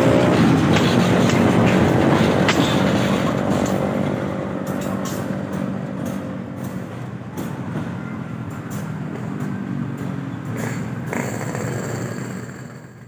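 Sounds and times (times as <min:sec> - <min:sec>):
locomotive engine running: 0:00.0 - 0:13.0
sharp clacks: 0:00.3 - 0:07.6.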